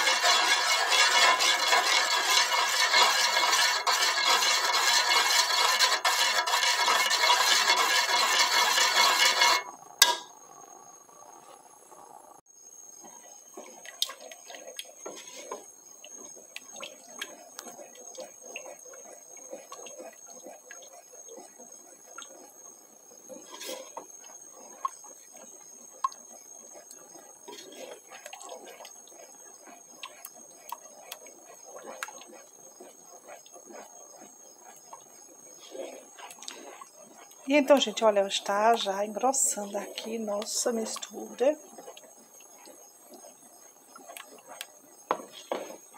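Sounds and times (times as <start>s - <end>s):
spoon stirring sauce in saucepan: 0.0s - 10.2s, 13.0s - 45.9s
metal spoon scraping saucepan: 0.0s - 10.3s, 15.0s - 15.7s, 23.4s - 24.1s.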